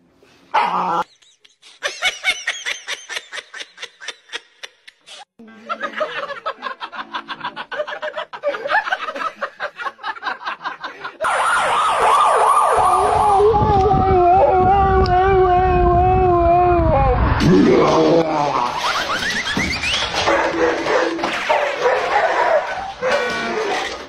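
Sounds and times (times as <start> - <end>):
husky howling: 12.4 - 17.2.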